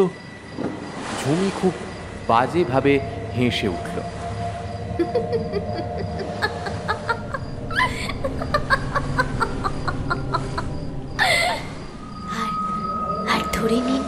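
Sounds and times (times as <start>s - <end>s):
low steady drone: 0.0s - 14.0s
woman cackling laugh: 5.0s - 11.7s.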